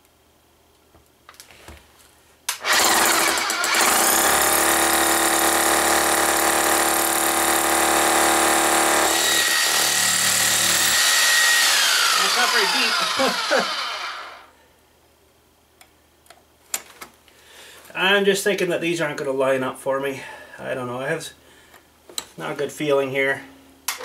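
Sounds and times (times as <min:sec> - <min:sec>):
hammer drill boring into concrete: 0:02.5 - 0:14.5.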